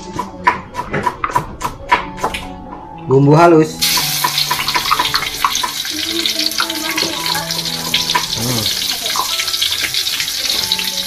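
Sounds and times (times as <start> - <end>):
paste sizzling in hot oil: 3.8 - 11.0.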